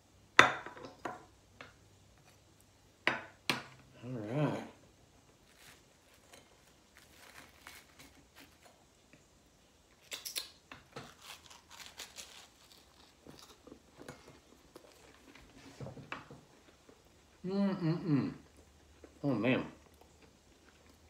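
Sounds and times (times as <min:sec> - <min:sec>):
toast crunching: 0:05.2 - 0:09.2, 0:09.9 - 0:17.4, 0:18.4 - 0:21.0
toast rustling: 0:05.2 - 0:09.2, 0:09.9 - 0:17.4.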